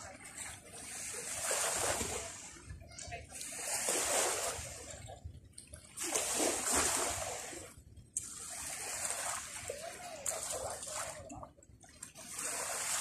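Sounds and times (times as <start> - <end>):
waves washing onto shore: 0.0 - 5.2, 6.0 - 11.4, 12.0 - 13.0.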